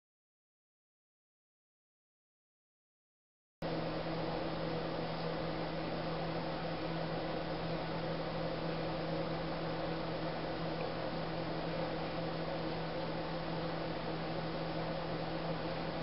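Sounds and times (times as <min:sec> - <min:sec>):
steady hum: 0:03.6 - 0:16.0.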